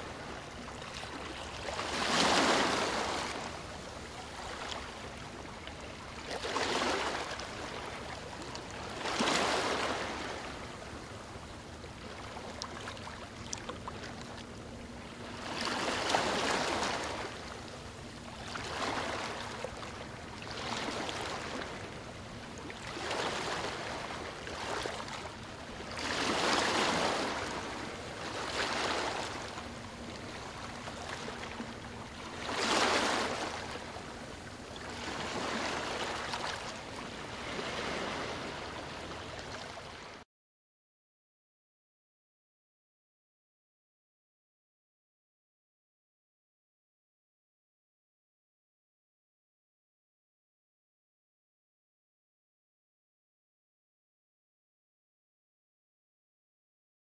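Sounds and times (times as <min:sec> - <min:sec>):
ocean waves washing: 0:00.0 - 0:08.2, 0:15.0 - 0:40.0.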